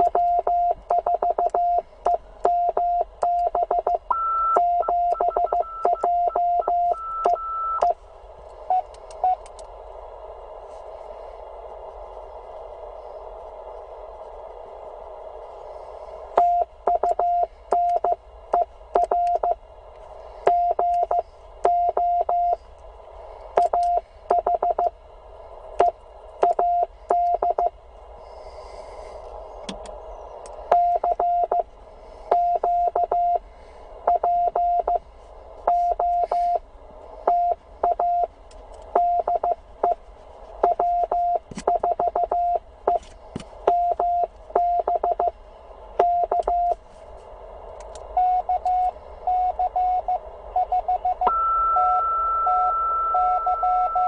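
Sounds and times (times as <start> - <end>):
morse code tone: 0.0 - 8.0, 39.0 - 40.0, 40.6 - 43.0, 48.2 - 54.0
receiver hiss: 0.0 - 54.0.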